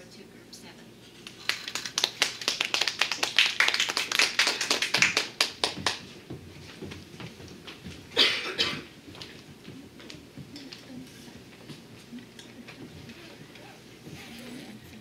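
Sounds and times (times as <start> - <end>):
audience clapping: 1.2 - 6.2.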